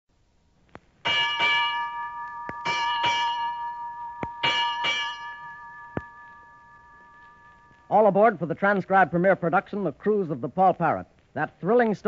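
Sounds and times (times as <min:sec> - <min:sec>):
ship's bell ringing: 0:01.0 - 0:08.6.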